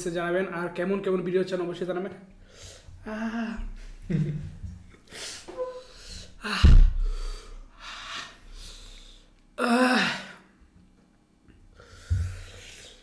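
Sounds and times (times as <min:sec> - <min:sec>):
man groaning: 0:09.6 - 0:10.4.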